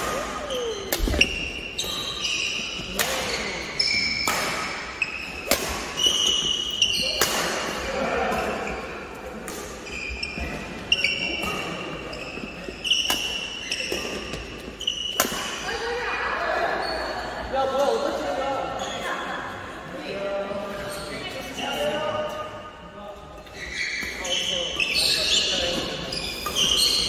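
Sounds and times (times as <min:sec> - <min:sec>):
shoes squeaking on gym floor: 0:00.4 - 0:07.2, 0:09.8 - 0:15.6, 0:23.4 - 0:27.0
racket hitting shuttlecock: 0:02.8 - 0:03.5, 0:04.1 - 0:06.5, 0:07.2 - 0:07.8, 0:15.1 - 0:15.6.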